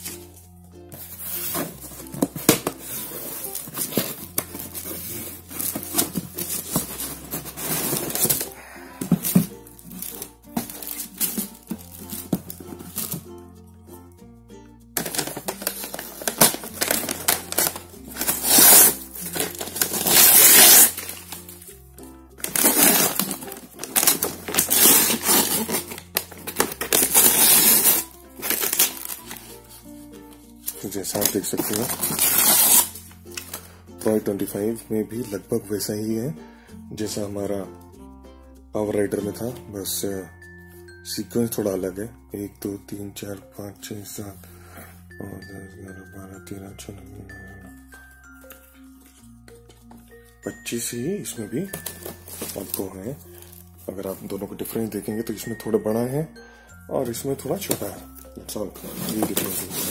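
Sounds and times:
cardboard flaps scraping and rustling: 1.0 - 13.2, 58.8 - 59.9
paper wrapping tearing and crumpling: 1.2 - 12.3, 15.0 - 21.6, 22.4 - 29.5, 30.7 - 33.6, 58.8 - 59.9.

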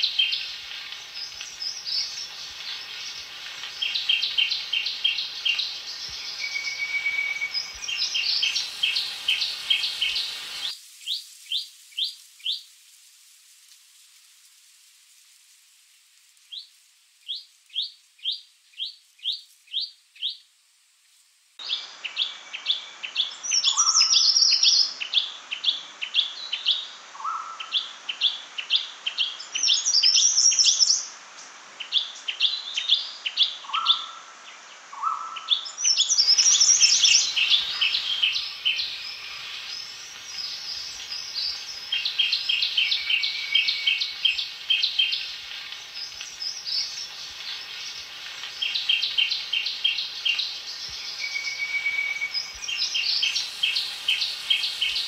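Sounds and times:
bird twittering: 3.8 - 10.7, 35.0 - 45.3, 48.6 - 55.0
bird chip calls: 35.0 - 55.0.

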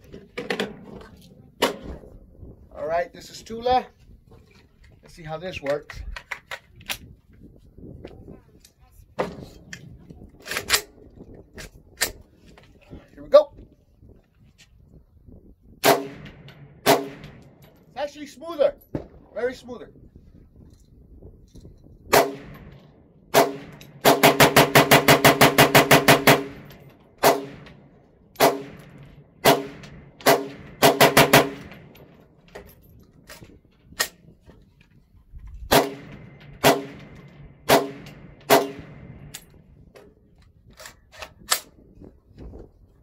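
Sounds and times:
rifle gunshots: 15.8 - 17.6, 22.1 - 27.8, 28.4 - 32.1, 35.7 - 39.3.

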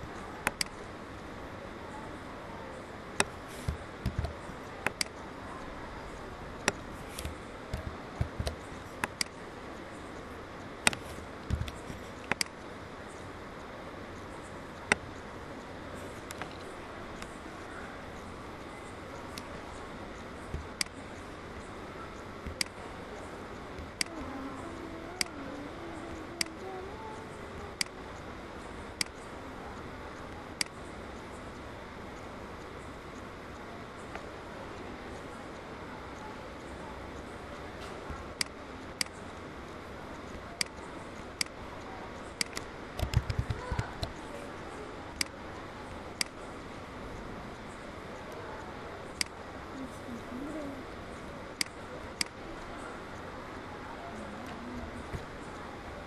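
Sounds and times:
computer mouse clicking: 0.0 - 0.8, 3.2 - 5.2, 6.6 - 9.4, 10.8 - 12.6, 20.5 - 21.0, 22.4 - 22.8, 42.2 - 44.2, 45.1 - 46.4
steady hiss: 0.0 - 56.0.

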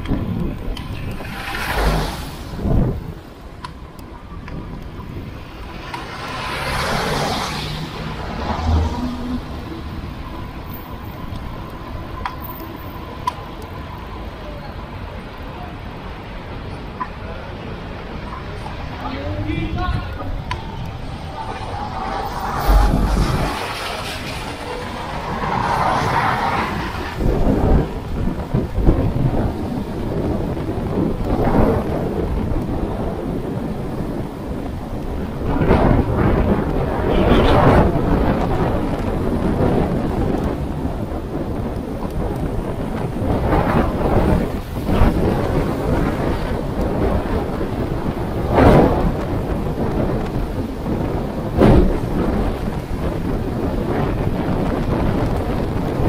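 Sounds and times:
road and wind noise: 0.0 - 56.0
car passing close: 0.8 - 3.4, 4.8 - 11.3, 19.8 - 28.4
tyre hiss on wet road: 1.2 - 2.6.

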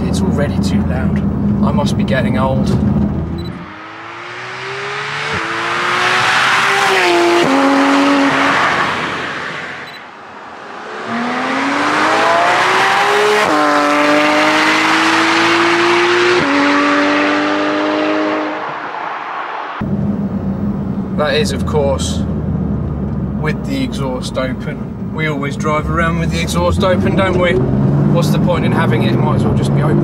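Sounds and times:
engine upshifts: 0.0 - 30.0
sports car engine accelerating past: 3.0 - 19.0.

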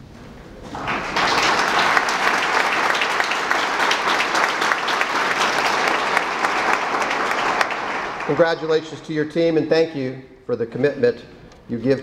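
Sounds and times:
audience applauding: 0.6 - 9.2.

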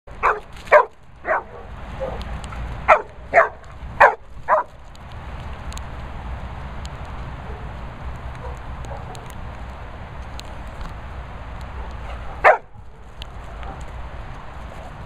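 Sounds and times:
dog barking: 0.2 - 2.2, 2.9 - 4.7, 8.4 - 9.2, 11.8 - 12.7.

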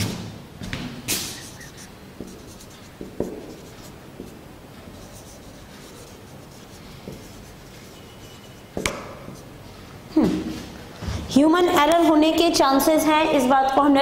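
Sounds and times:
marker scratching on whiteboard: 1.1 - 9.6.

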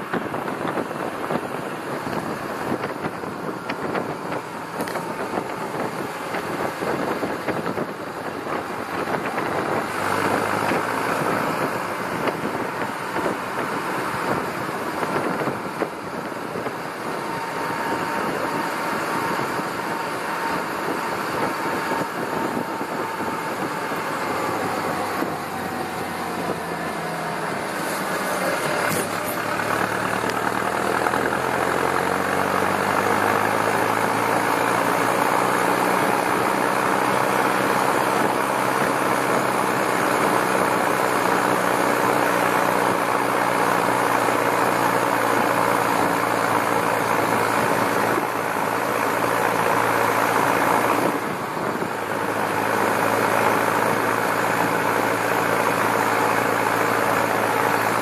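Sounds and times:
tractor diesel engine running: 0.0 - 58.0.

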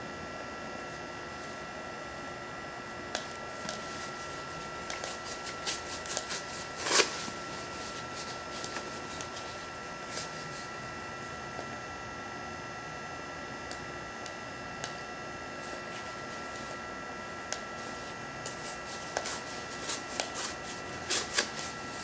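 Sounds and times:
electric fan whine: 0.0 - 22.0
scrape and rustle: 3.8 - 10.7, 17.8 - 22.0.

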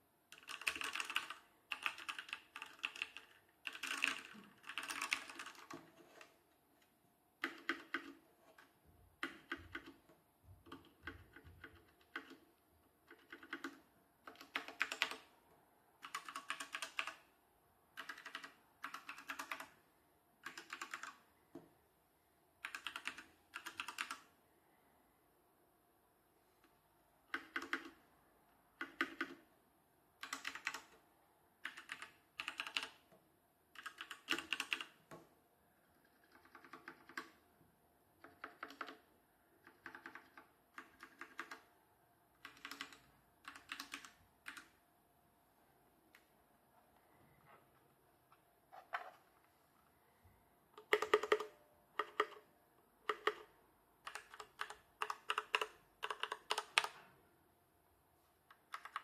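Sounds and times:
mechanical keyboard typing: 0.3 - 6.3, 7.4 - 10.0, 10.6 - 15.3, 16.0 - 17.3, 17.9 - 19.8, 20.4 - 21.2, 22.6 - 24.3, 27.3 - 28.0, 28.8 - 29.4, 30.2 - 31.0, 31.6 - 33.0, 33.7 - 35.2, 35.9 - 37.4, 38.2 - 41.7, 42.4 - 44.8, 50.8 - 57.0, 58.5 - 59.0.

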